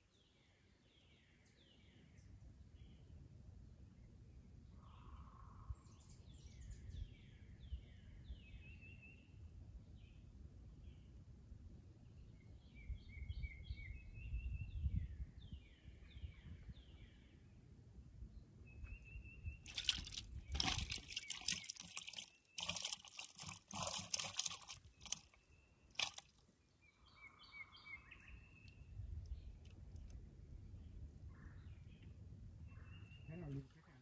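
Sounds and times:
small birds chirping and trilling: 0:19.4 - 0:30.0.

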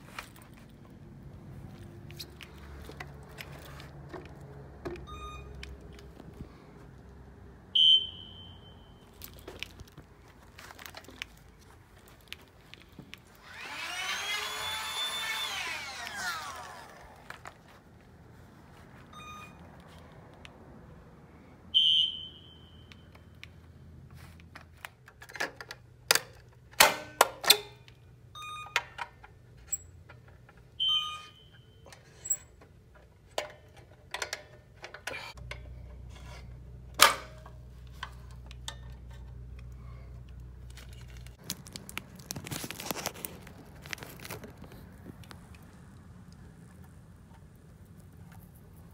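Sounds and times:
fire alarm horn beeps: 0:07.8 - 0:09.1, 0:21.7 - 0:23.2, 0:30.8 - 0:32.4
rising and falling tone: 0:13.4 - 0:17.3.

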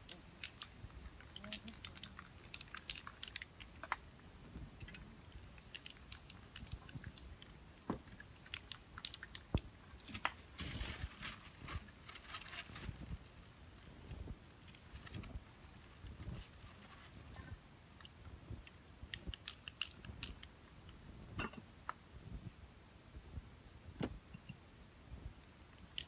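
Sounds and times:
spray cans clicking and tapping: 0:04.8 - 0:07.3
paper crinkling and rustling: 0:10.0 - 0:13.3, 0:14.6 - 0:17.4.

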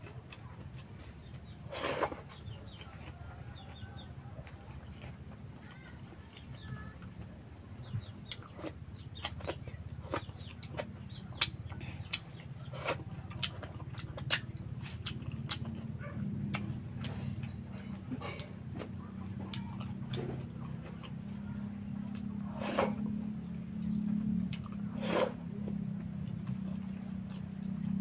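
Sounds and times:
low steady hum: 0:00.0 - 0:28.0
mouth clicks and smacks chewing: 0:08.2 - 0:17.6.

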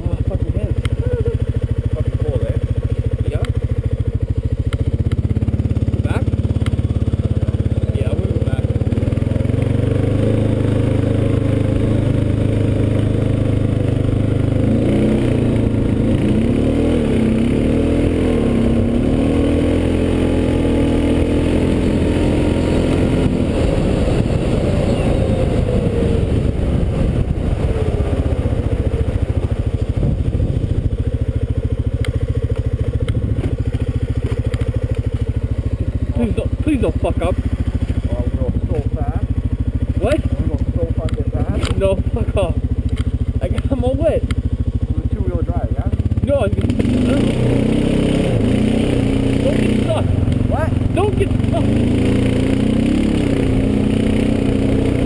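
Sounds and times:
atv engine revving: 0:00.0 - 0:55.0
tyres and chassis rattling on gravel: 0:32.1 - 0:47.1.

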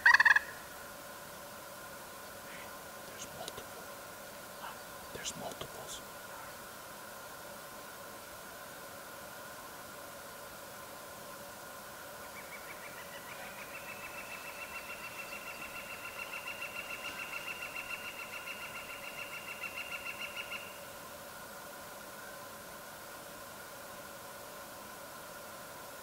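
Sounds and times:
bird trilling: 0:00.0 - 0:00.5.

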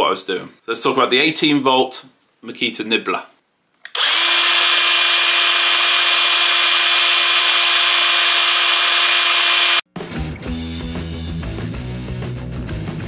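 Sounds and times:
power nibbler motor whine: 0:03.9 - 0:09.8.

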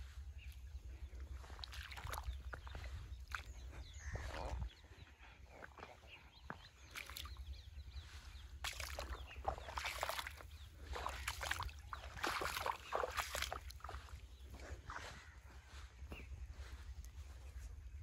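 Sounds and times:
water gurgling and splashing: 0:08.6 - 0:14.1.

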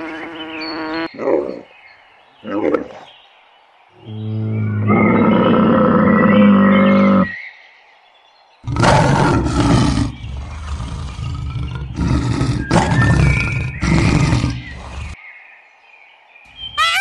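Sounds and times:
large animal roaring: 0:04.0 - 0:07.3, 0:08.7 - 0:15.2.

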